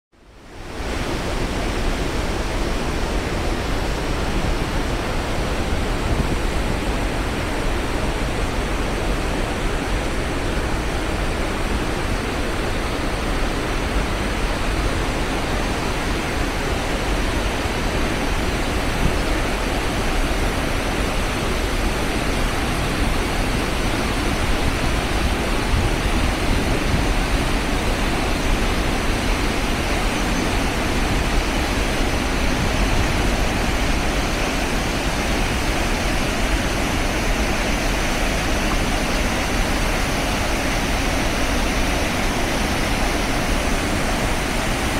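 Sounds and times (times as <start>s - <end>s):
water rushing over rocks: 0.3s - 44.9s.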